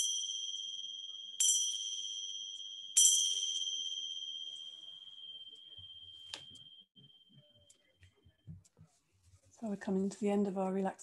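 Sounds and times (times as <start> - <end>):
small cymbals ringing: 0.0 - 7.2.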